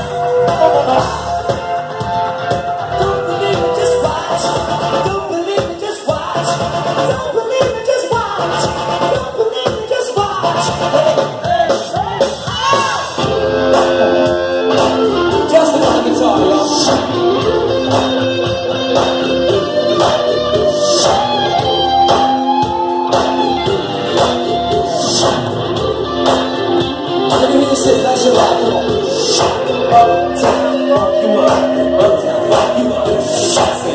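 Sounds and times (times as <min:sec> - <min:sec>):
person singing: 0:00.0 - 0:01.4, 0:02.7 - 0:33.9
bass guitar: 0:00.0 - 0:33.9
drums: 0:00.0 - 0:33.9
electric guitar: 0:00.0 - 0:33.9.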